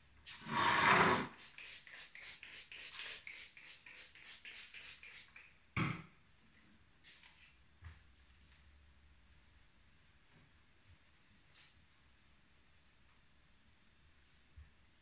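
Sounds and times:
spray bottle spritzing: 0.3 - 5.5.

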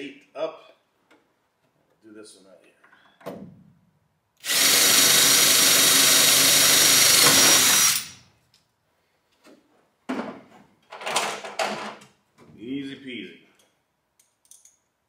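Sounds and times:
cordless drill drilling into metal: 4.4 - 8.2.

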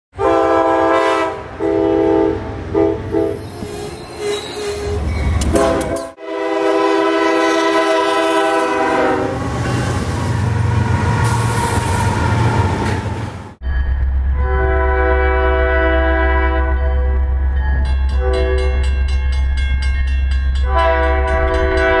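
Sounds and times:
locomotive air horns: 0.2 - 10.1, 14.4 - 17.2, 18.2 - 18.8, 20.6 - 22.0.

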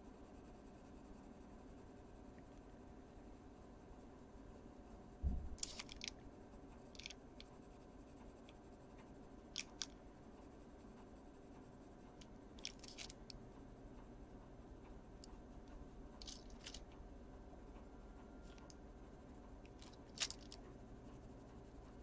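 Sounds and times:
soft low thump: 5.2 - 5.6.

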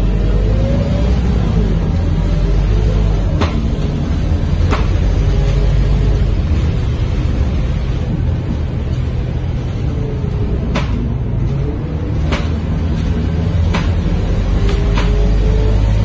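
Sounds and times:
bus engine droning: 0.0 - 16.0
sharp knocks: 10.7 - 11.1, 13.6 - 14.1, 14.7 - 15.3.

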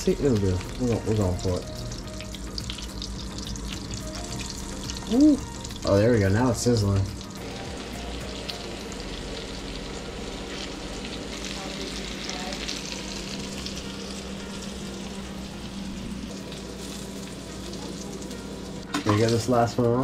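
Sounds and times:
fish sizzling in hot oil: 0.0 - 19.8
low hum: 7.2 - 18.9.

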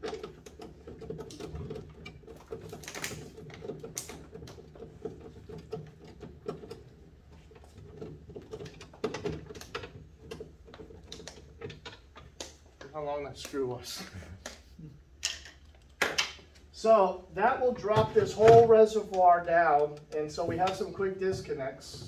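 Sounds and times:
hand tools clicking and scraping: 17.9 - 22.0.

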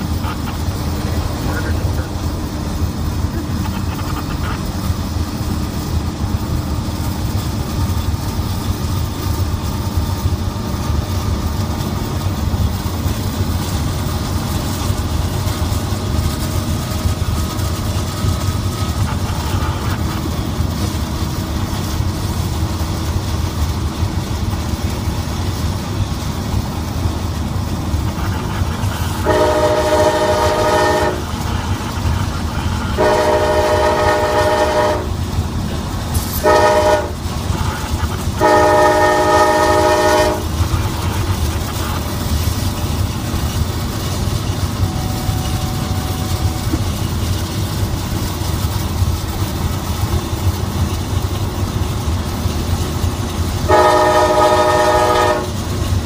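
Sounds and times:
locomotive horn: 0.0 - 4.6, 28.1 - 35.3, 36.3 - 42.0, 44.6 - 47.0, 53.7 - 55.6
car cabin road rumble: 0.0 - 56.0
freight train running: 0.0 - 56.0.

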